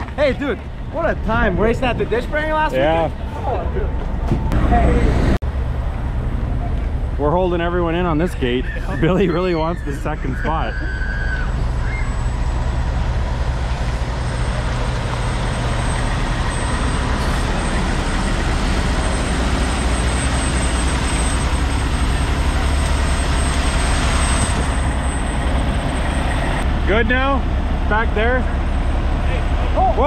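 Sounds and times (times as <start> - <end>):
truck engine running: 0.0 - 30.0.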